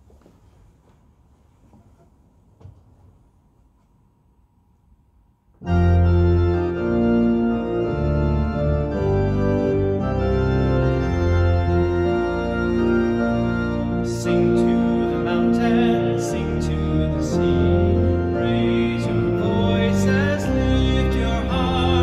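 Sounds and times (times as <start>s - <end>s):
organ playing held chords: 5.6s - 22.0s.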